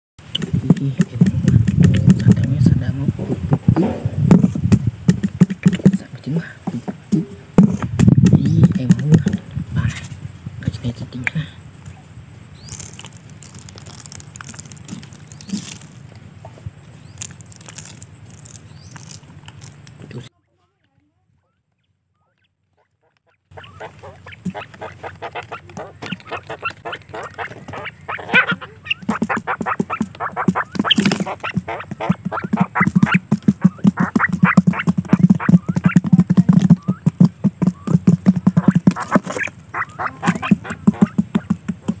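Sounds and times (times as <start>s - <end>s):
quail pecking on cardboard: 0.2s - 10.2s, 12.6s - 21.1s, 21.7s - 42.0s
quail chirping: 11.8s - 14.0s, 21.4s - 42.0s
grain pattering onto cardboard: 12.6s - 20.0s.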